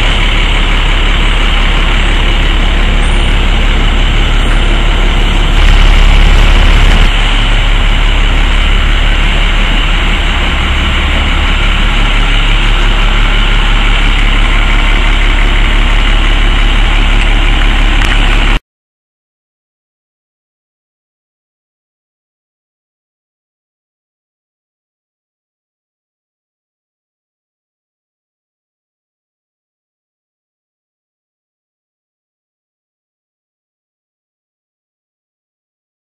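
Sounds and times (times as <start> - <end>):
diesel truck engine idling: 0.0 - 18.6.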